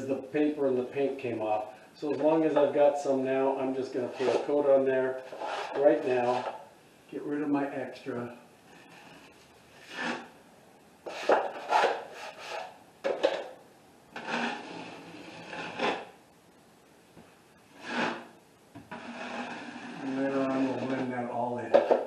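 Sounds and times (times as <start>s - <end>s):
drywall knife scraping: 4.0s - 6.6s, 8.9s - 10.3s, 11.0s - 12.8s, 14.2s - 16.1s, 17.8s - 21.2s.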